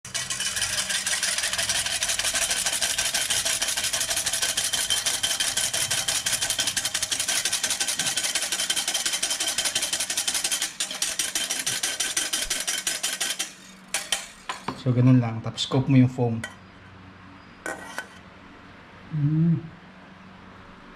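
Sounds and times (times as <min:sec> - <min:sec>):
whisk beating in metal saucepan: 0:00.0 - 0:14.7.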